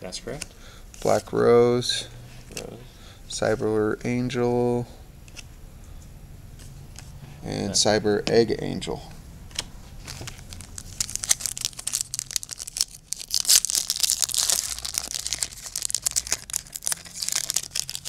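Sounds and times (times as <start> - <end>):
foil wrapper crinkling and tearing: 10.0 - 18.0.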